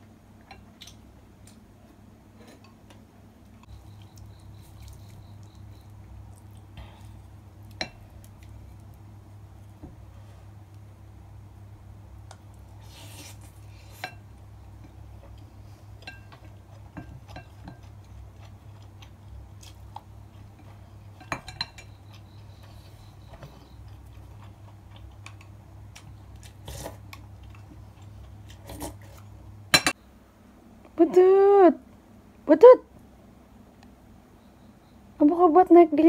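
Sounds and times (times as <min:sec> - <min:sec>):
steady low hum: 0:00.0 - 0:36.0
utensils clinking on ceramic dishes: 0:21.2 - 0:22.0.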